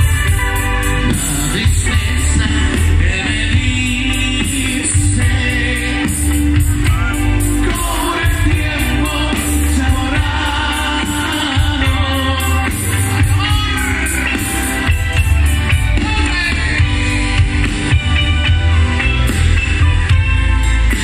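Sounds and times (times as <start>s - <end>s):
saxophone: 0.0s - 1.6s
bass and drum beat: 0.0s - 21.0s
electric guitar: 0.0s - 21.0s
live band through pa: 0.0s - 21.0s.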